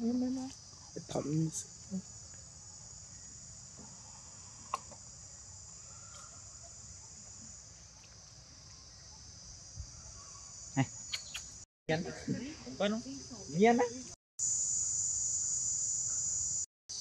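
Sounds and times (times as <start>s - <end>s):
insects chirping: 0.0s - 17.0s.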